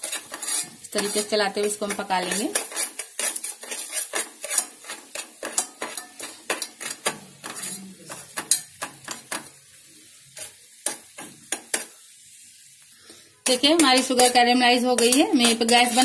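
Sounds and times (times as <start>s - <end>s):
metal spoon scraping a pot: 0.0s - 9.5s, 13.4s - 16.0s
syrup bubbling and sizzling: 0.0s - 16.0s.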